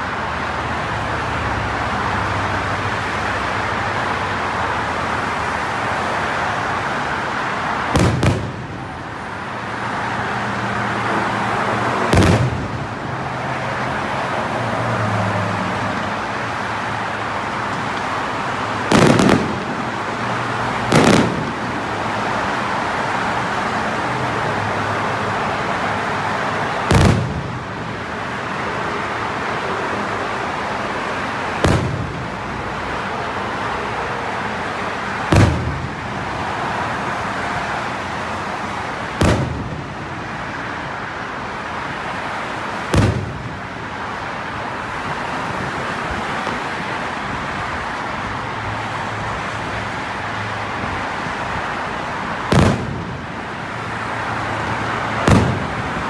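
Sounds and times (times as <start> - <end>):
steady background rush: 6.6 - 47.8
firework booms: 7.9 - 8.8, 12.0 - 12.9, 18.9 - 20.1, 20.8 - 21.8, 26.8 - 27.8, 31.6 - 32.3, 35.3 - 35.9, 39.2 - 40.1, 42.9 - 43.6, 52.5 - 53.2, 55.2 - 56.0.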